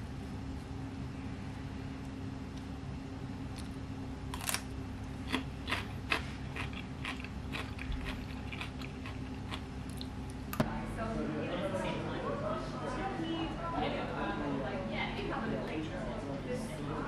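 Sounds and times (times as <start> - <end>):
low room hum: 0.0 - 17.0
chewing: 4.4 - 10.4.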